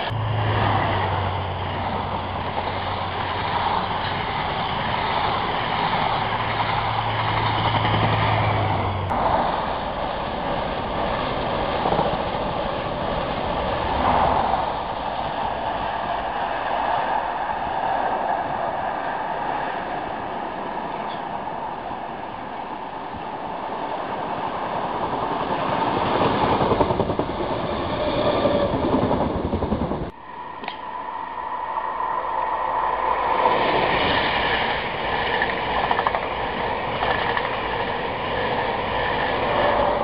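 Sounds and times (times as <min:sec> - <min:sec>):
train wheels rushing on rails: 0:00.0 - 0:40.0.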